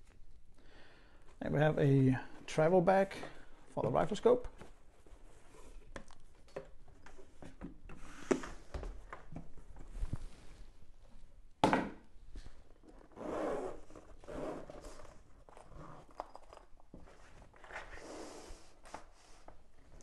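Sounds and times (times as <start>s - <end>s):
zipper of fabric case opening: 12.9s - 16.4s.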